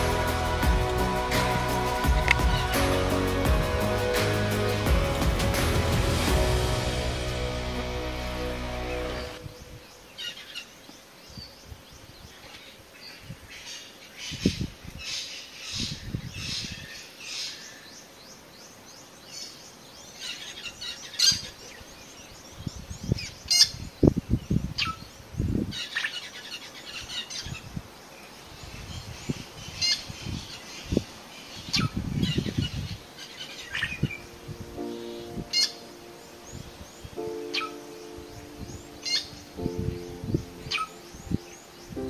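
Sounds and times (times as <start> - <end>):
low rumbling bursts: 0.0 - 10.0
high-pitched chirps and trills: 33.9 - 42.0.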